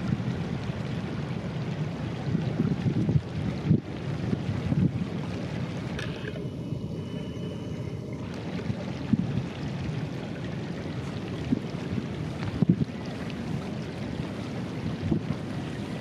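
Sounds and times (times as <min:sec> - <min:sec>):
wind buffeting microphone: 0:00.0 - 0:07.0, 0:07.8 - 0:16.0
shallow stream water: 0:00.0 - 0:16.0
ocean surf: 0:03.9 - 0:16.0.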